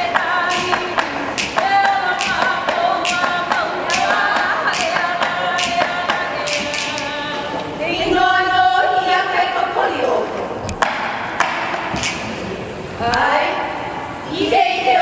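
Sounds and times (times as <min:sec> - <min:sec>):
person chanting: 0:00.0 - 0:10.3
gourd drum strikes: 0:00.1 - 0:07.0, 0:10.8 - 0:12.5.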